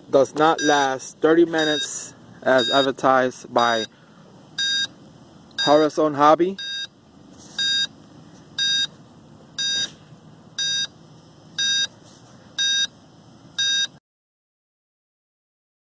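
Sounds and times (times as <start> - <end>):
short high alarm beeps: 0.6 - 0.9, 1.6 - 2.9, 4.6 - 5.0, 5.6 - 5.9, 6.6 - 7.0, 7.6 - 8.0, 8.6 - 9.0, 9.6 - 9.9, 10.6 - 10.9, 11.6 - 12.0, 12.6 - 12.9, 13.6 - 14.0.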